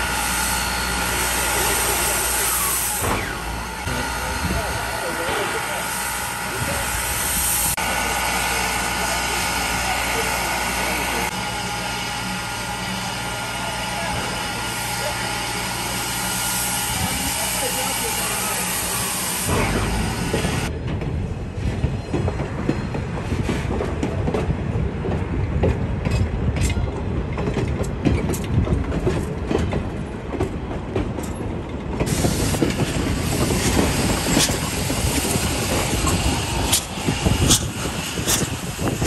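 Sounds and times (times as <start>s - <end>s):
steam hissing: 0.0s - 20.7s, 32.0s - 39.0s
train wheels clicking over rail joints: 19.5s - 39.0s.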